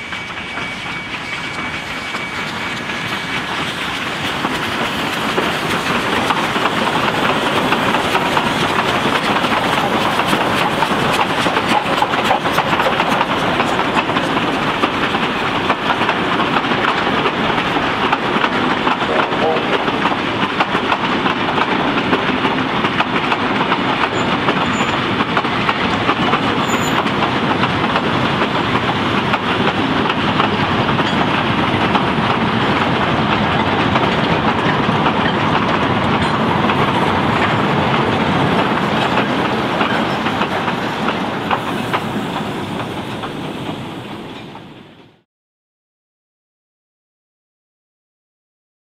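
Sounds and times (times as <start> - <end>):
train wheels clattering over rail joints: 0.0 - 19.1, 19.8 - 44.8.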